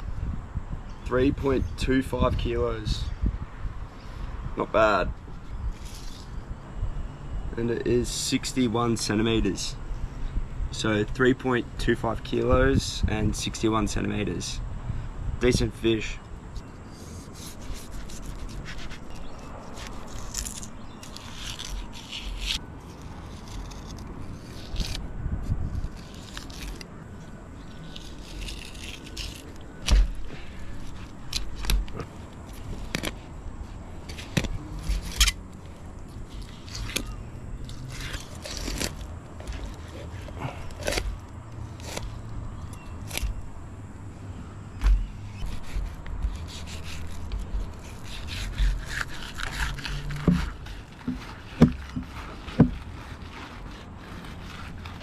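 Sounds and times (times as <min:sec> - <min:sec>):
knife scraping fish: 0:16.9 - 0:25.0, 0:27.8 - 0:33.2, 0:36.2 - 0:41.2, 0:45.3 - 0:55.0.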